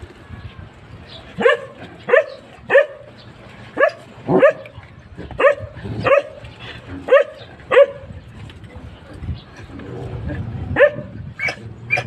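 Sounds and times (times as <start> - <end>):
dog barking: 1.4 - 3.1, 3.8 - 4.7, 5.4 - 6.4, 7.1 - 8.1, 10.8 - 12.0.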